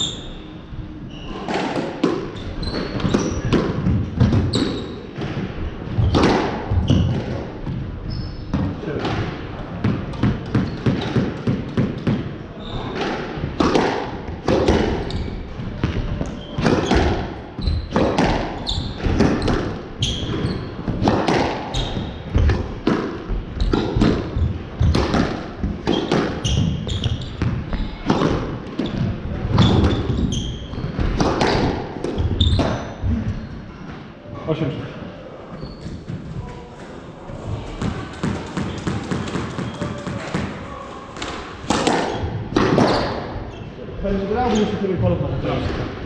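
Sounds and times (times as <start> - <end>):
shoes squeaking on wooden floor: 0.0 - 8.8, 14.7 - 22.6, 23.3 - 28.1, 28.7 - 31.5, 32.1 - 33.7, 35.5 - 36.8.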